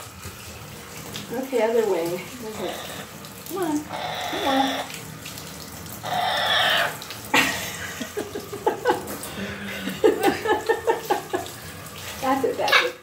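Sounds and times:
water spraying from shower head: 0.0s - 13.0s
parrot calls: 3.9s - 4.9s, 6.0s - 7.0s.

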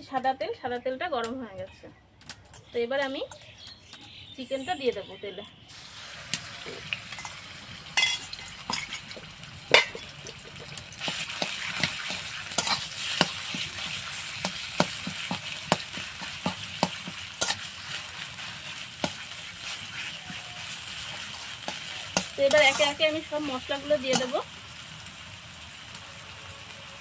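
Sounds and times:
food sizzling in hot oil: 5.7s - 27.0s
metal spatula scraping a pan: 6.6s - 24.4s.

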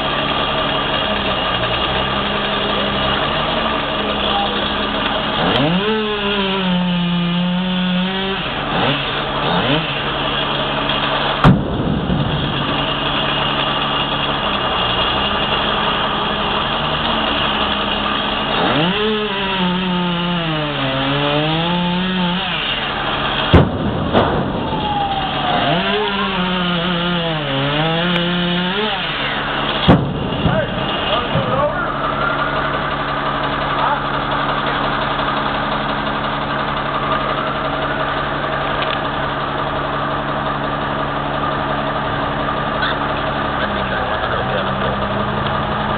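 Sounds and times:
chainsaw cutting wood: 0.0s - 45.9s
truck engine drone: 0.0s - 45.9s
sharp knocks: 11.4s - 13.4s, 23.5s - 24.8s, 29.7s - 31.6s.

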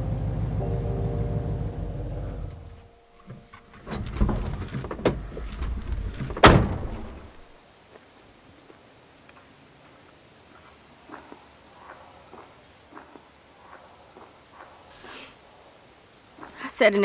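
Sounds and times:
truck engine idling: 0.0s - 7.4s
clunks and rattles: 1.8s - 7.5s
door slam: 3.3s - 7.4s.

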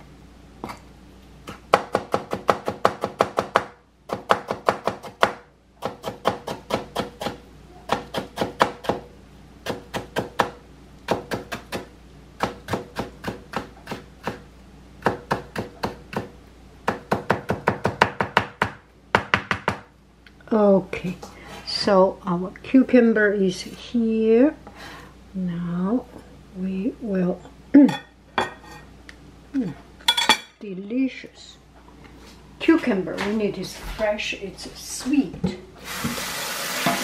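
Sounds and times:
knife chopping on cutting board: 1.5s - 9.0s, 15.0s - 19.9s.

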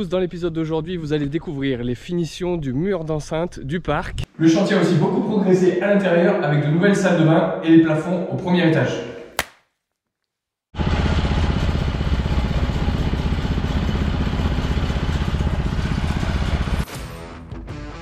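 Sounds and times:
engine running: 10.8s - 16.8s.

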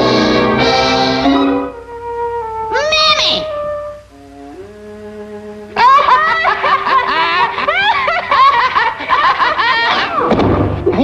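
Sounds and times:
cartoon laughing: 5.8s - 10.3s.

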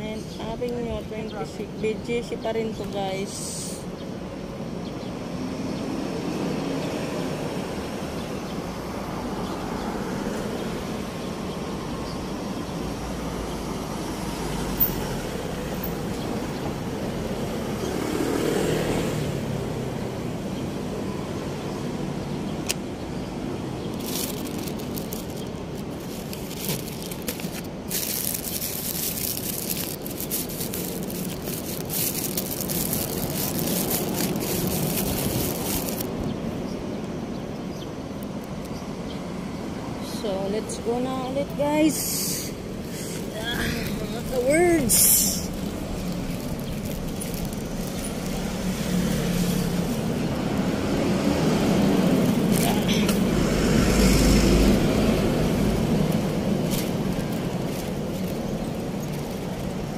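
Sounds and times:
passing cars hum: 0.0s - 59.9s
vehicle passing by: 16.4s - 22.5s, 42.0s - 59.9s
rustling crackling hiss: 22.5s - 59.9s.

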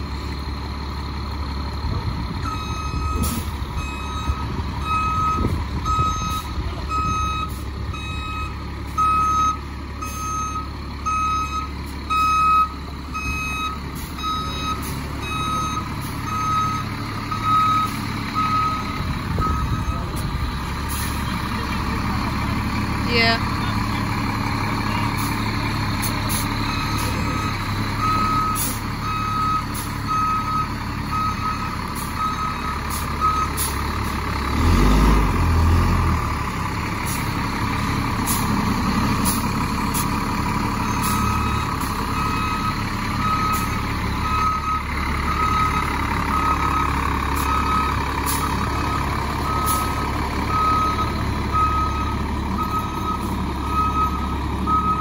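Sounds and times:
diesel engine running: 0.0s - 55.0s
backup alarm beeping: 2.5s - 20.2s.

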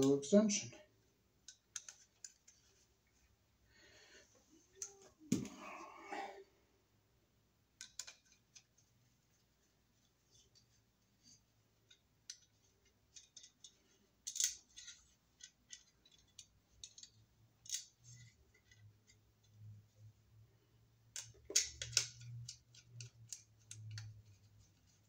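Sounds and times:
screwdriver clicks and scrapes: 1.4s - 2.7s, 7.8s - 8.7s, 11.9s - 19.2s, 21.1s - 24.9s.

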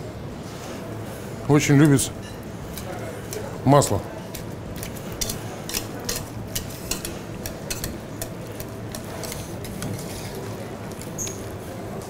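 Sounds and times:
whisk ticking against metal pot: 4.2s - 11.2s.

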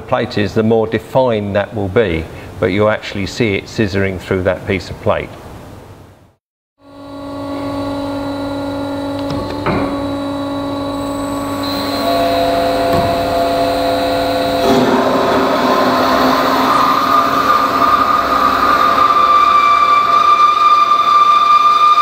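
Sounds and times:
bandsaw motor whine: 6.8s - 22.0s
bandsaw cutting steel: 7.0s - 22.0s.

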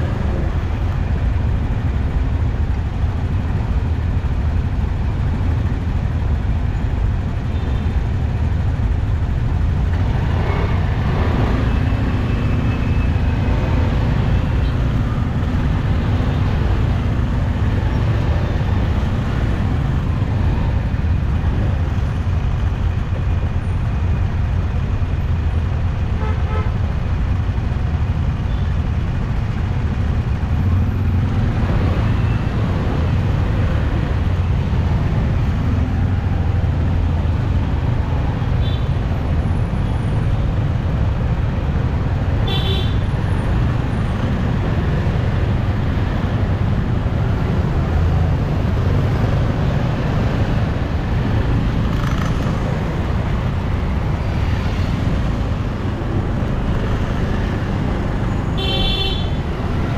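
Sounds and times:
traffic rumble: 0.0s - 59.9s
car horn toot: 58.6s - 59.4s.

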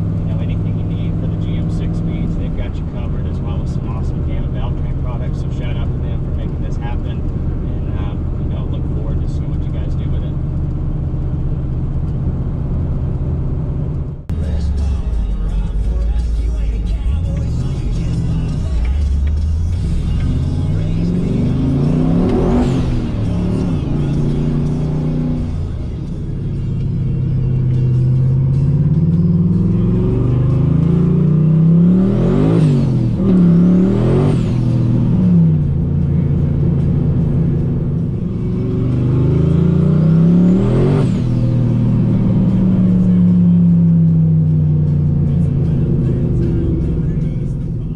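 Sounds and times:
pickup engine revving: 0.0s - 47.9s.

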